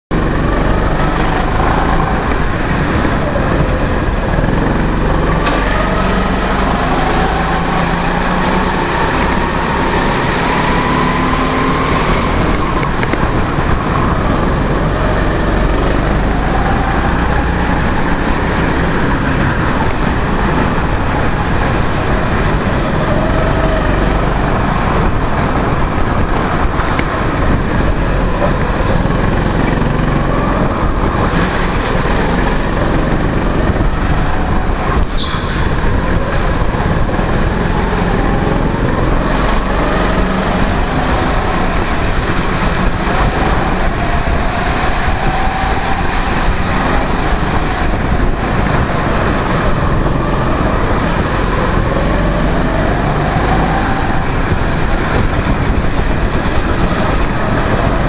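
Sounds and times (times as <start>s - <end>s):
go-kart engine revving: 0.1s - 58.0s.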